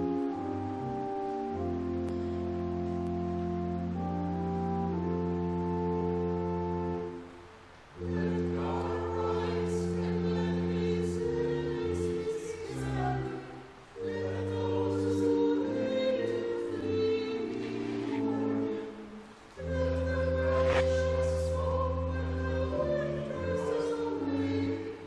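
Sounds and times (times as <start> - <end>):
organ chords: 0.0 - 25.0
choir singing in harmony: 7.9 - 25.0.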